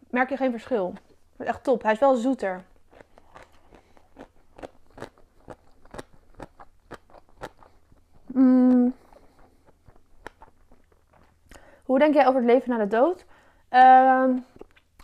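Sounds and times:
wet chewing clicks: 0.6 - 11.8, 14.4 - 15.0
person humming mm: 8.2 - 9.2.

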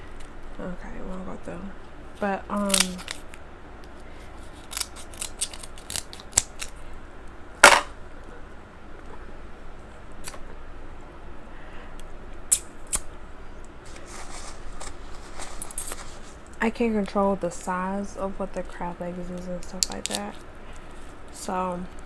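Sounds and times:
crab shells cracking: 2.6 - 3.4, 4.4 - 6.8, 19.8 - 20.4.

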